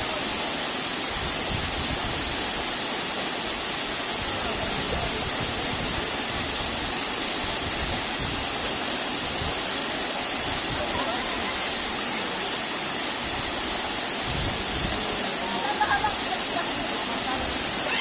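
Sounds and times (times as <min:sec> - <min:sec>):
waterfall pouring into pool: 0:00.0 - 0:18.0.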